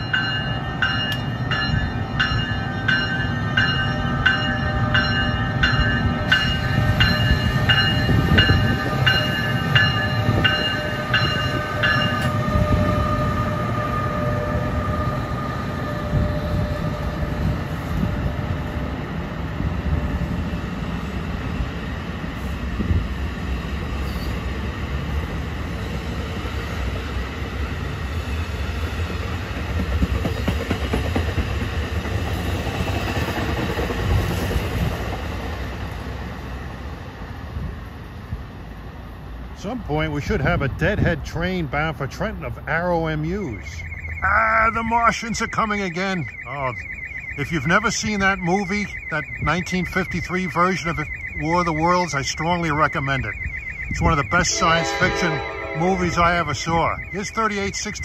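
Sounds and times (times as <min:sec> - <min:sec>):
locomotive bell ringing: 0:00.0 - 0:19.1, 0:42.3 - 0:58.0
train rolling with low rumble: 0:00.0 - 0:46.1.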